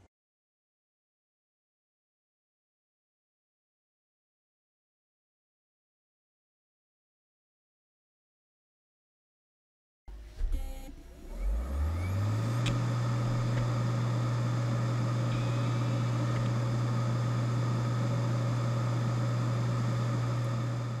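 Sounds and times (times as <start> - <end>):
hard drive spinning up: 10.4 - 21.0.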